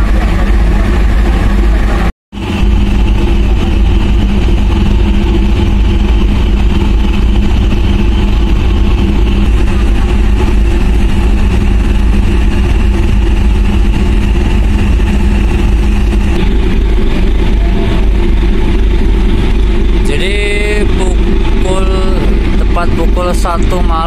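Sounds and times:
ship diesel engines droning: 0:00.0 - 0:24.0.

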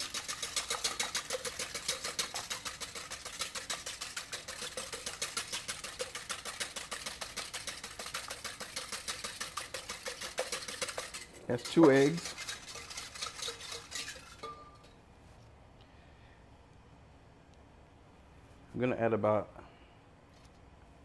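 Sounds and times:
whisk clicking against bowl: 0:00.0 - 0:14.8.

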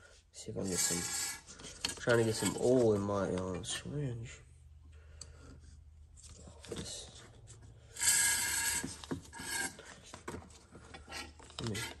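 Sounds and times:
scratchy rasp: 0:00.6 - 0:03.0, 0:08.0 - 0:10.0, 0:11.0 - 0:12.0
plastic rubbing and scraping: 0:00.6 - 0:03.8, 0:06.2 - 0:12.0.

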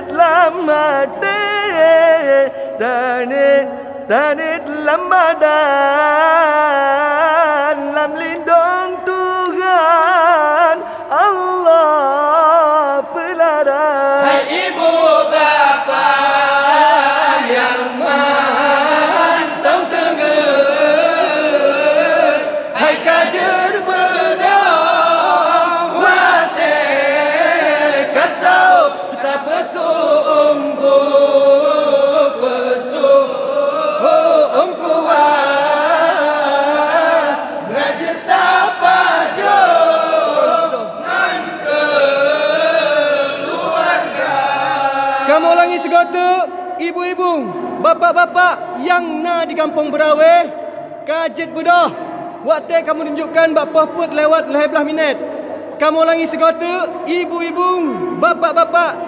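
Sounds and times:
person chanting into a microphone: 0:00.0 - 0:59.0
group of voices chanting: 0:14.2 - 0:46.1.

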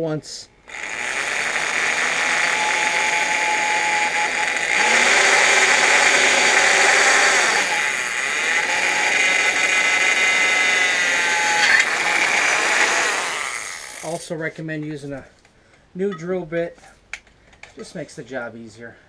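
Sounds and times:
electric drill boring through metal: 0:00.7 - 0:14.2.

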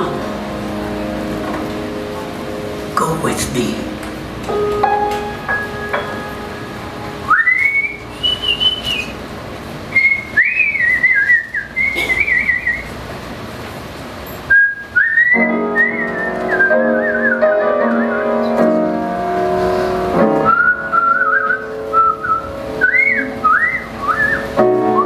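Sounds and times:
band playing held chords: 0:00.0 - 0:08.2
woman whistling a melody: 0:07.3 - 0:09.2, 0:09.9 - 0:12.9, 0:14.5 - 0:18.5, 0:20.4 - 0:25.0.

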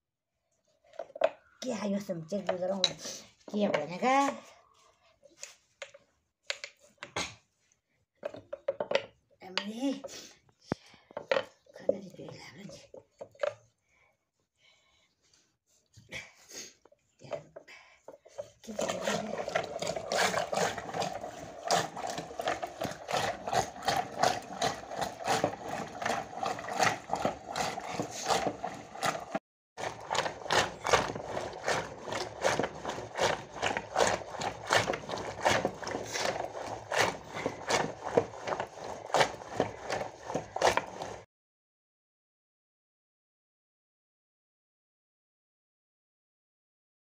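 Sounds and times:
wooden churning stick knocking: 0:18.2 - 0:41.2.

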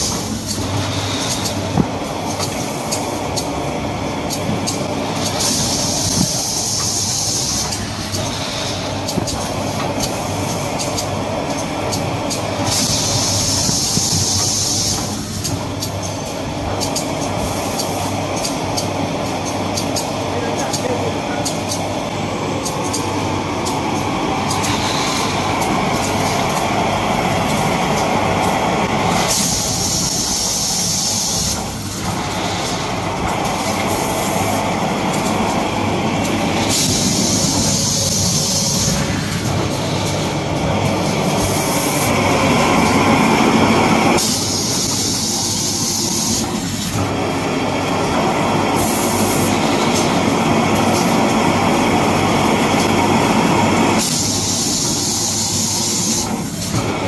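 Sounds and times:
machinery clatter and hum: 0:00.0 - 0:57.0.

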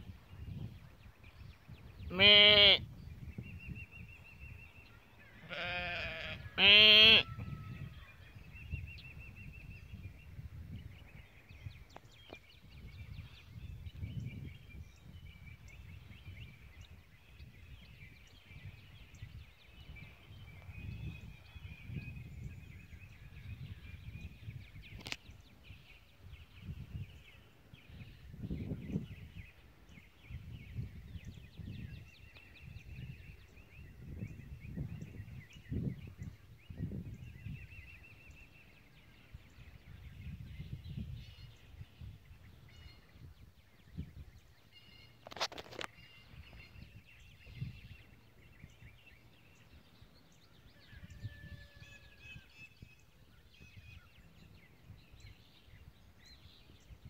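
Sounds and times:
lambs bleating: 0:02.1 - 0:02.8, 0:05.4 - 0:07.3.

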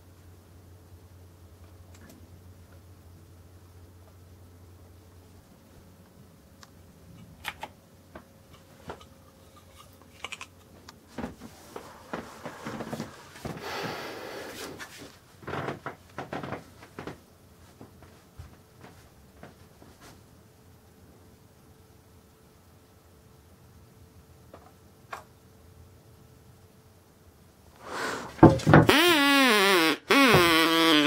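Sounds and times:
rustling and scraping: 0:08.1 - 0:20.3.

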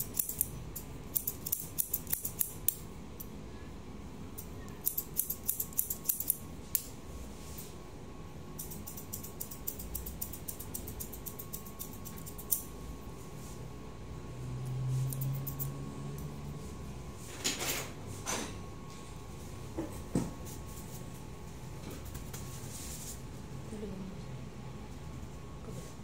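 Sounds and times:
scissors snipping hair: 0:00.0 - 0:02.8, 0:04.4 - 0:06.9, 0:08.6 - 0:12.7, 0:15.1 - 0:16.3.

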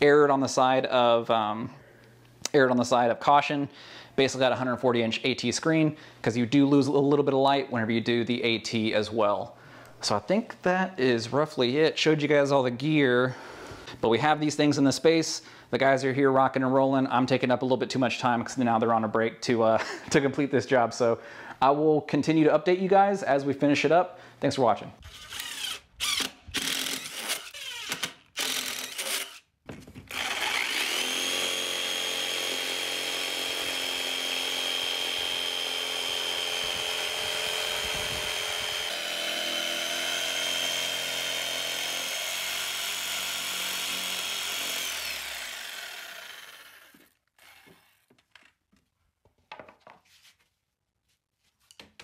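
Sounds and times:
cordless drill drilling: 0:25.0 - 0:29.5, 0:30.1 - 0:48.1
jigsaw cutting with high whine: 0:25.1 - 0:48.1.

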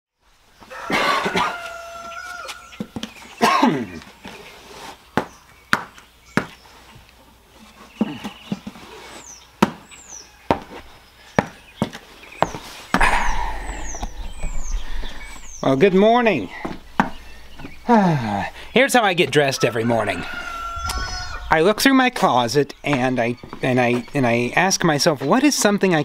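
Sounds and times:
footsteps on concrete: 0:01.5 - 0:03.4, 0:04.0 - 0:17.9, 0:22.8 - 0:24.7
bird chirping: 0:01.7 - 0:26.0
sharp knocks: 0:16.6 - 0:17.9
squeal falling in pitch: 0:20.6 - 0:21.6.

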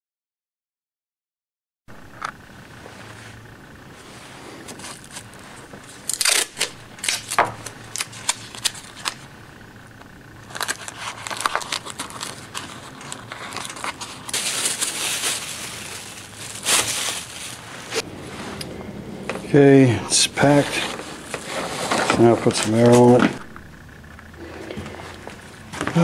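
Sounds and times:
plastic and tissue paper crinkling: 0:04.0 - 0:09.2, 0:10.4 - 0:18.6, 0:20.4 - 0:23.2.

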